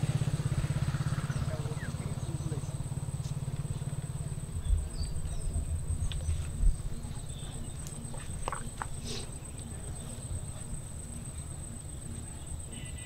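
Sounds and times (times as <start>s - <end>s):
small engine puttering: 0.0s - 6.6s.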